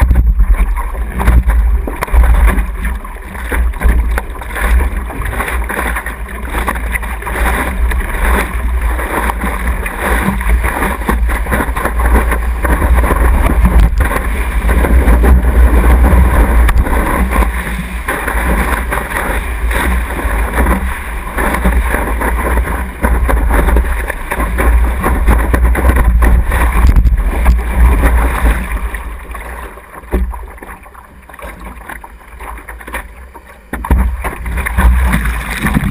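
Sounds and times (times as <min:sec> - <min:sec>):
water rushing and splashing: 0:00.0 - 0:35.9
wind buffeting microphone: 0:07.5 - 0:29.0.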